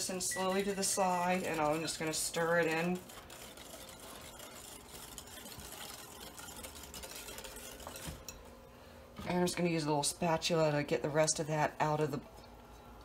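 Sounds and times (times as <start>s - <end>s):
whisk clicking against glass bowl: 0.0s - 8.4s
whisk swishing in mixture: 0.0s - 8.4s.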